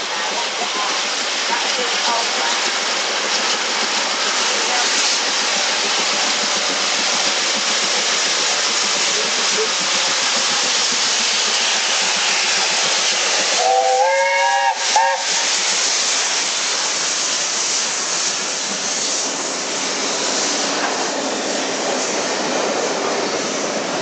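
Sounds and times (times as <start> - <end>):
rushing noise of passing train: 0.0 - 24.0
steam locomotive whistle: 13.5 - 15.4.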